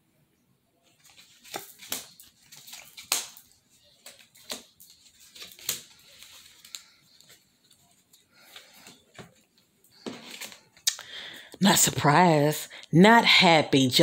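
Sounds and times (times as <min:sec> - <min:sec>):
cards slapped on wooden desk: 0:01.4 - 0:04.7.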